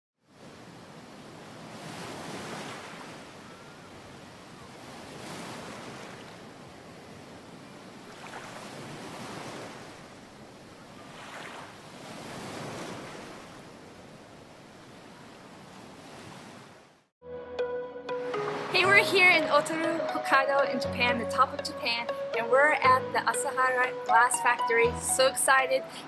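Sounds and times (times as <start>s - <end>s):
ocean waves breaking: 0.3s - 17.1s, 18.2s - 22.6s.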